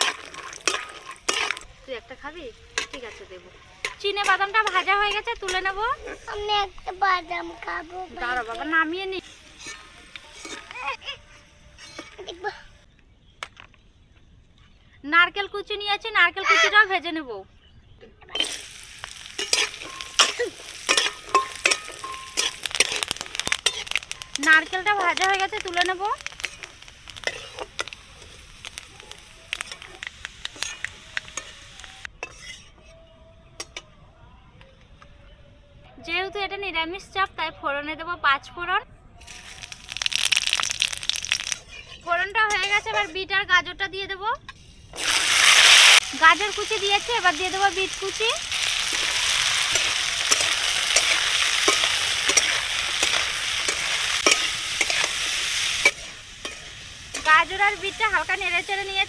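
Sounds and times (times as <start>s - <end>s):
metal spatula scraping a wok: 0.0s - 1.7s, 2.8s - 6.4s, 7.6s - 12.5s, 18.4s - 33.0s, 40.8s - 43.2s, 47.4s - 58.7s
hot oil sizzling: 0.0s - 12.7s, 18.4s - 32.6s, 39.2s - 43.0s, 44.5s - 59.0s.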